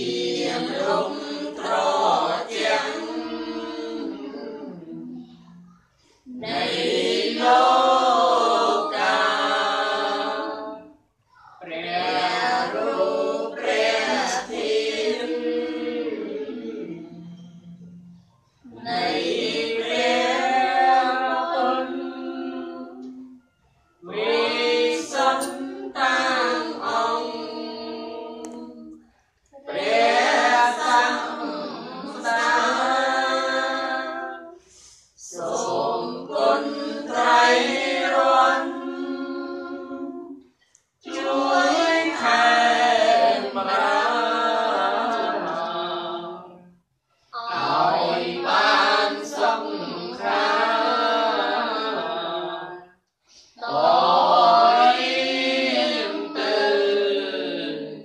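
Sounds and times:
group chanting in unison: 0.0s - 23.4s, 24.0s - 58.0s.

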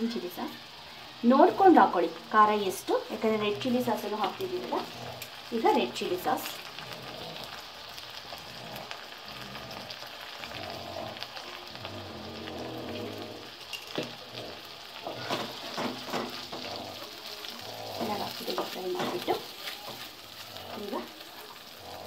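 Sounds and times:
oil sizzling in a pan: 0.0s - 22.0s
wooden spatula scraping a pan: 13.9s - 21.8s.

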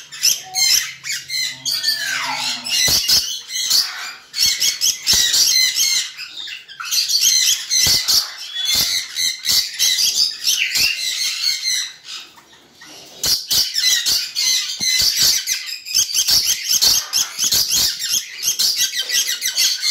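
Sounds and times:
parrot chattering squawks: 0.0s - 6.1s.

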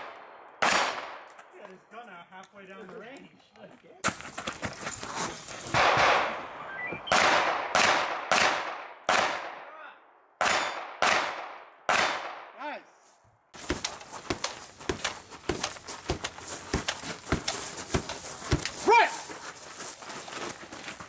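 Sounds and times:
handgun shots echoing: 0.0s - 1.4s, 10.4s - 12.6s.

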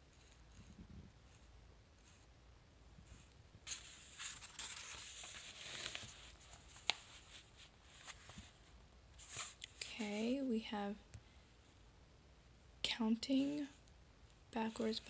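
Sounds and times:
book pages rustling: 3.1s - 9.8s.

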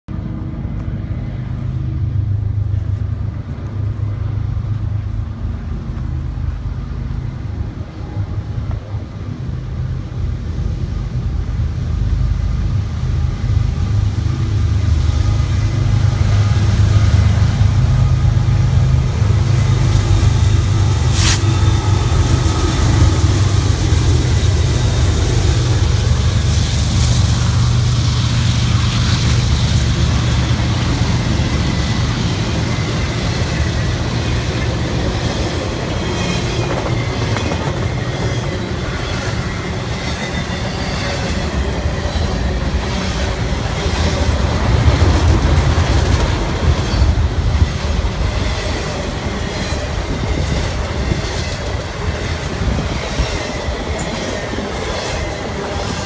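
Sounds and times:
freight train rumble: 0.0s - 56.0s
steel wheels clattering on rails: 29.2s - 56.0s.

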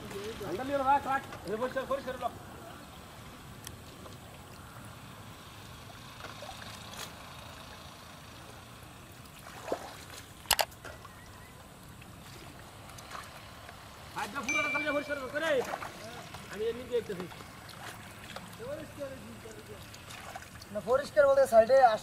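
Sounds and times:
fish splashing in water: 2.7s - 7.9s, 8.7s - 14.1s, 15.4s - 20.8s.

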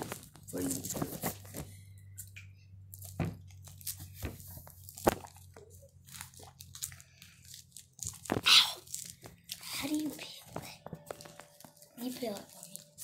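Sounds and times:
orange peel snapping and tearing: 2.2s - 9.8s.

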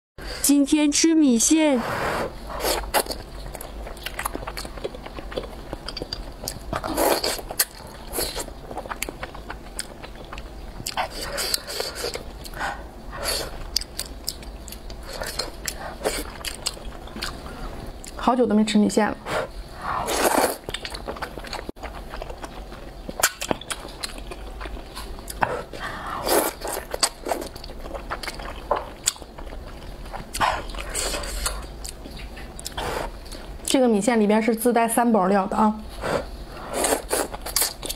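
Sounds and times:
slurping and chewing noodles: 2.4s - 18.2s, 19.3s - 33.6s, 35.9s - 37.9s
person slurping noodles: 19.3s - 20.6s, 25.5s - 27.4s, 36.0s - 37.8s.

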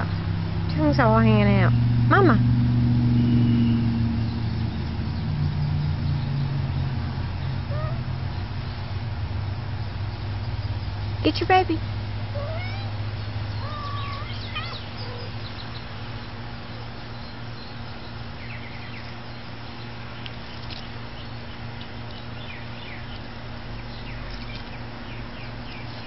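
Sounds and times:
steady low hum: 0.0s - 26.0s
high bird chirps: 7.4s - 8.1s, 12.4s - 19.2s
cat meowing: 7.7s - 8.1s, 12.3s - 13.0s, 13.6s - 15.3s.

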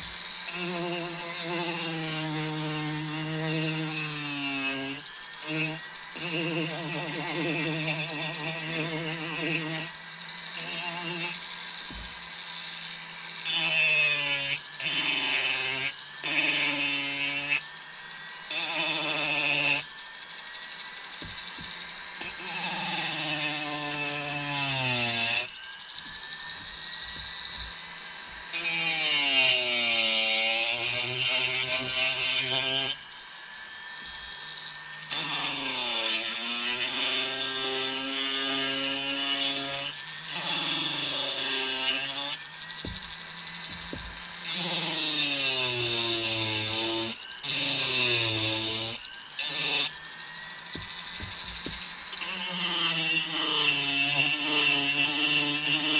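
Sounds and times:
rotary tool grinding wood: 0.0s - 55.9s.

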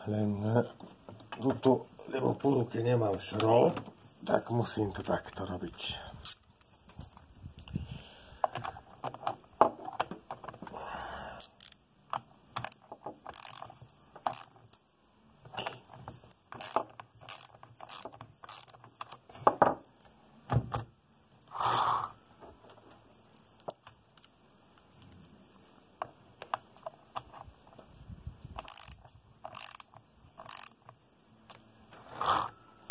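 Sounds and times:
metal clicks and clinks: 8.4s - 21.5s, 22.1s - 31.9s
wrench scraping on nut: 11.4s - 14.9s, 15.5s - 19.3s, 26.8s - 32.9s.

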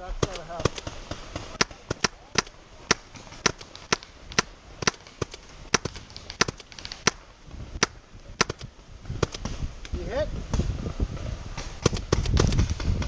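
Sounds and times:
paintball markers firing: 0.2s - 9.5s, 11.6s - 13.0s.

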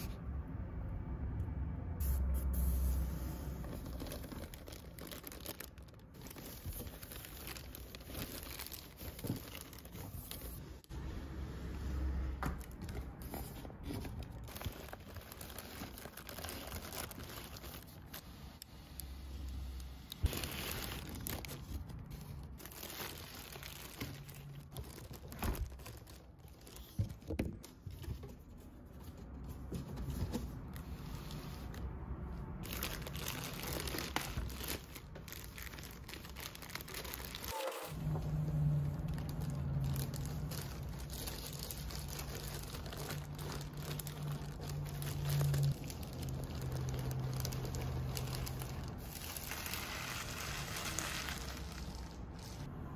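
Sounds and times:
cardboard rustling: 3.5s - 10.9s, 12.6s - 18.4s
plastic packaging crinkling: 3.5s - 10.9s, 12.6s - 31.8s, 32.6s - 52.7s.

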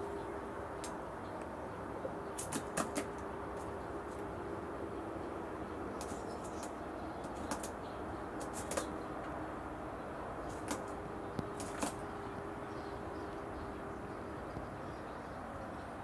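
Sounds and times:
faint steady hum: 0.0s - 16.0s
outdoor background noise: 0.0s - 16.0s
bird pecking on plastic table: 2.4s - 3.1s, 6.0s - 7.7s, 8.4s - 8.9s, 11.5s - 12.0s
bird wings flapping: 2.4s - 4.2s, 6.0s - 7.8s, 8.4s - 9.0s, 10.5s - 12.0s.

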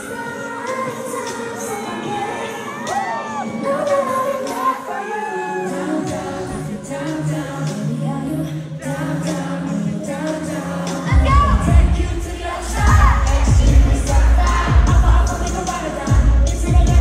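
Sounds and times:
women singing over backing track: 0.0s - 17.0s
heavy bass beat: 10.9s - 17.0s.

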